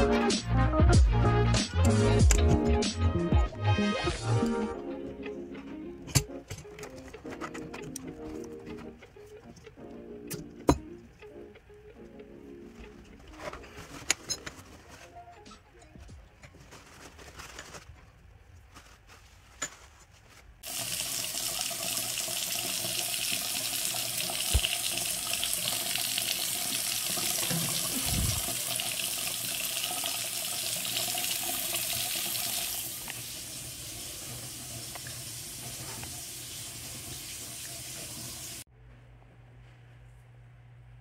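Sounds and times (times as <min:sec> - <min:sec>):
faucet water running into sink: 0:20.6 - 0:38.6.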